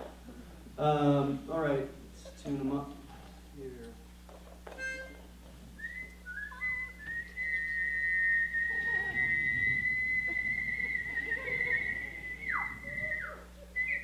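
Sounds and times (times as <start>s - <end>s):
men whistling into microphones: 5.8s - 14.0s.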